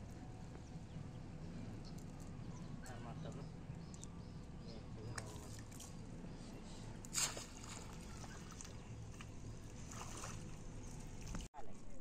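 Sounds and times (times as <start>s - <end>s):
water sloshing and trickling: 1.8s - 11.5s
water splash: 7.1s - 8.8s.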